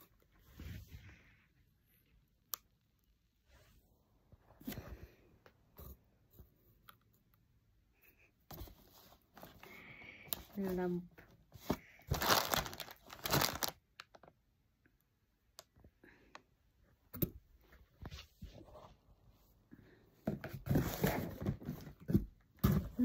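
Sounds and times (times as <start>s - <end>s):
cardboard packaging crinkling: 11.6s - 14.3s.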